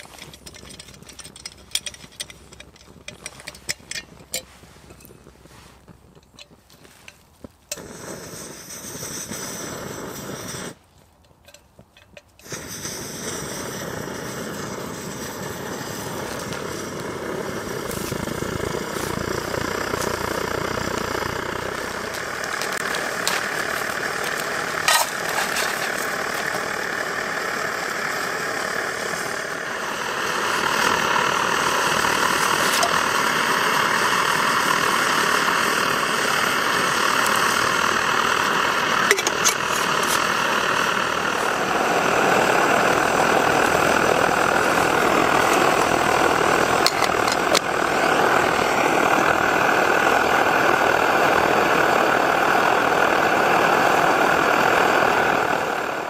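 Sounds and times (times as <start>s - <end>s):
stove burner rushing: 0.0s - 56.0s.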